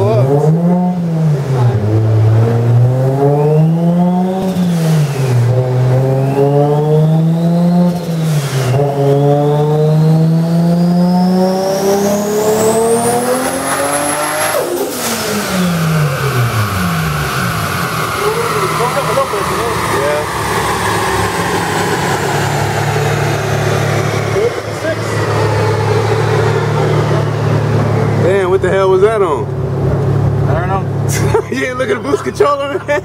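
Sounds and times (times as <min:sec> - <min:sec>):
car engine revving at full throttle: 0:00.0 - 0:33.0
turbo whistle: 0:03.3 - 0:10.0
sudden rush of noise: 0:12.0 - 0:31.1.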